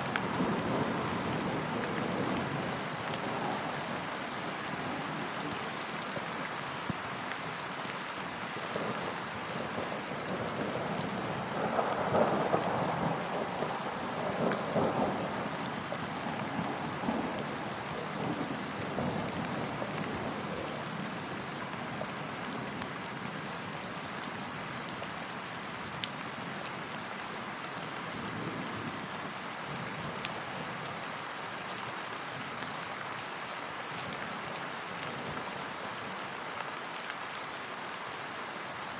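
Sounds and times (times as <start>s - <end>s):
rain on lake surface: 0.0s - 38.9s.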